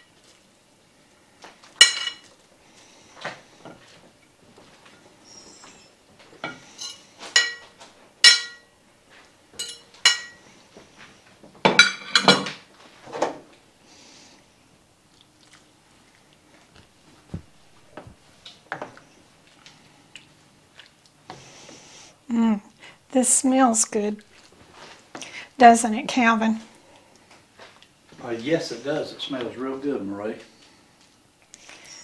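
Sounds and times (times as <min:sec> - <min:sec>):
utensil scraping and clinking on plate: 0:01.8 - 0:02.3, 0:06.4 - 0:08.7, 0:09.6 - 0:10.4, 0:11.7 - 0:12.6.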